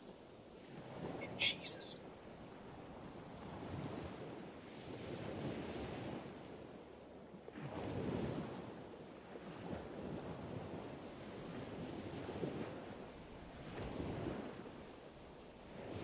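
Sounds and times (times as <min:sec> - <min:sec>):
ocean waves washing: 0:01.2 - 0:02.0.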